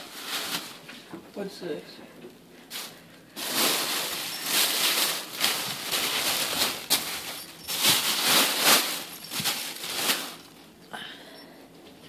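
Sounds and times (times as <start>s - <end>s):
plastic bags rustling: 0.0s - 1.0s, 2.6s - 11.0s
kitten scrabbling: 3.5s - 10.6s.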